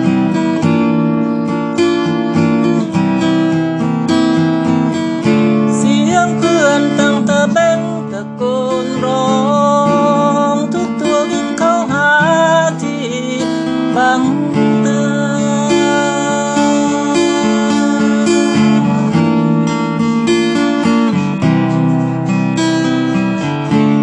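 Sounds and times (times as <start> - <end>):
acoustic guitar strumming: 0.0 - 24.0
man singing: 5.7 - 19.7.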